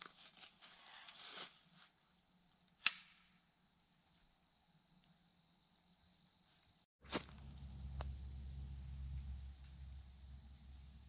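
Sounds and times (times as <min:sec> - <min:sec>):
click: 0:02.7 - 0:03.1
low rumble: 0:07.1 - 0:11.0.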